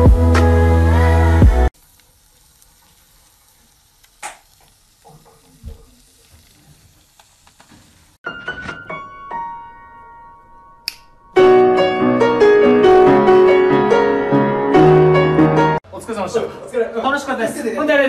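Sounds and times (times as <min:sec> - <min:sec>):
food sizzling on foil: 0:01.7 - 0:08.2
piano-like music: 0:08.2 - 0:15.8
sharp click: 0:10.8 - 0:11.1.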